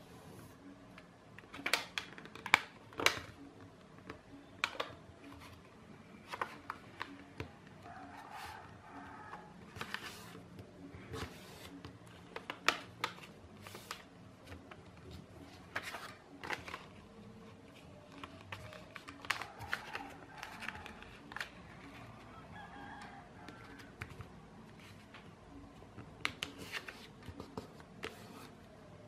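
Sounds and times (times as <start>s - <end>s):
paper folding and crinkling: 9.7s - 10.5s, 11.1s - 22.3s, 26.2s - 28.6s.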